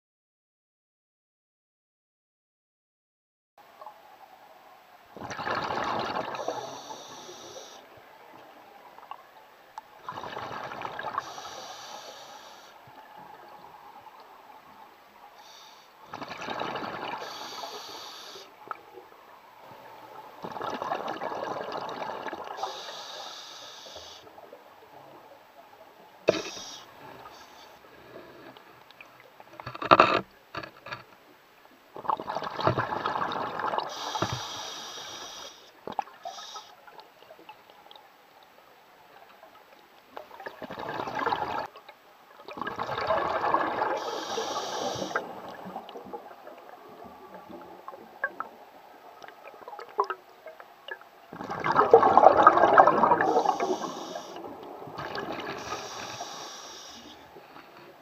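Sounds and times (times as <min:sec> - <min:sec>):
exhaled bubbles underwater: 0:05.2 - 0:07.7, 0:10.0 - 0:11.5, 0:16.1 - 0:17.7, 0:19.6 - 0:22.8, 0:32.0 - 0:34.0, 0:40.2 - 0:41.8, 0:42.4 - 0:56.3
regulator hiss: 0:06.4 - 0:07.8, 0:11.2 - 0:12.8, 0:17.2 - 0:18.5, 0:22.6 - 0:24.3, 0:33.9 - 0:36.8, 0:44.0 - 0:45.3, 0:53.2 - 0:54.4, 0:55.6 - 0:57.3.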